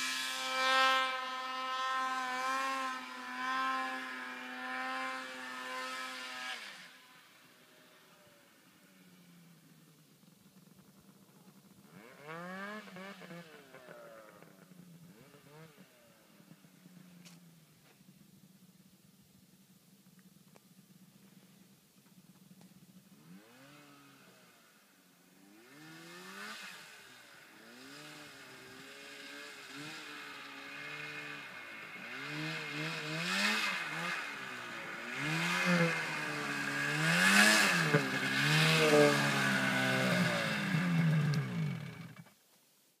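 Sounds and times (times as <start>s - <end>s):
snowmobile engine revving: 0.0s - 9.0s, 10.8s - 17.4s, 23.0s - 42.3s.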